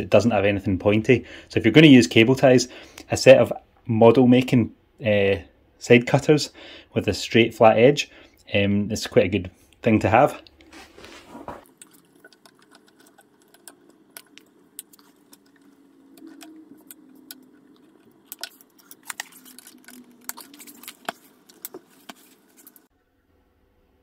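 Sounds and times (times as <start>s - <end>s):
cable ties clicking and rattling: 11.8s - 22.9s.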